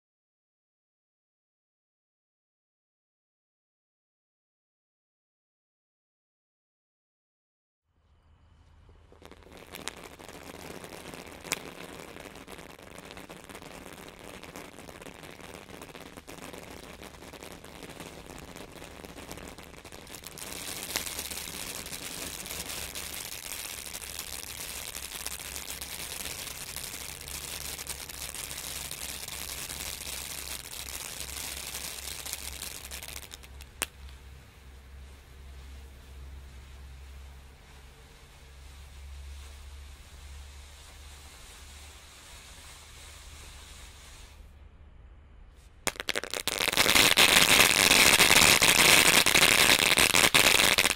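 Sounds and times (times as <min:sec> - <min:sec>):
sharp firework pops: 0:08.9 - 0:34.2, 0:45.8 - 0:50.9
fountain firework rushing: 0:08.9 - 0:44.4, 0:45.9 - 0:50.9.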